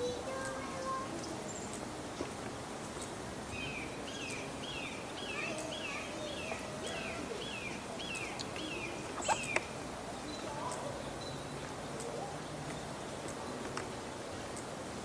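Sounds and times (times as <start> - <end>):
outdoor background noise: 0.0 - 15.0
faint clicks: 0.4 - 0.6
bird chirping: 3.5 - 13.7.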